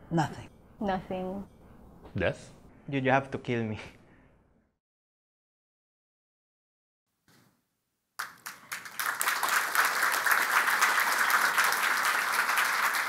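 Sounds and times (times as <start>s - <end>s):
audience applause: 8.2s - 13.0s.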